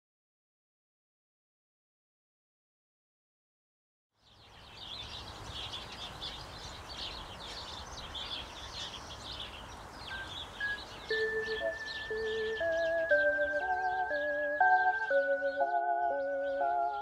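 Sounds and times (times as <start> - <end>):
small birds chirping: 4.2 - 17.0
tune of held musical notes: 10.6 - 17.0.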